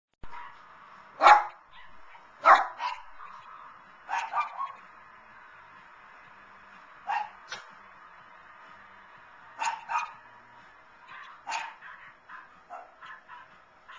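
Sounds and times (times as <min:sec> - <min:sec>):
dog barking: 0:00.3 - 0:00.6, 0:01.2 - 0:04.8, 0:07.1 - 0:07.7, 0:09.6 - 0:10.2, 0:11.0 - 0:13.9.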